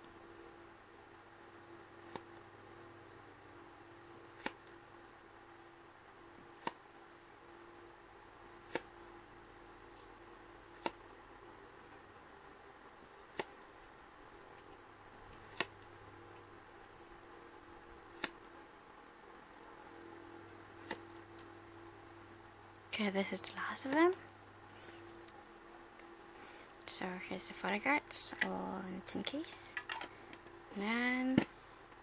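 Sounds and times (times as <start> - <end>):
faint steady hum: 0.0 - 32.0
photo cards clicking: 13.2 - 13.6, 18.1 - 18.5.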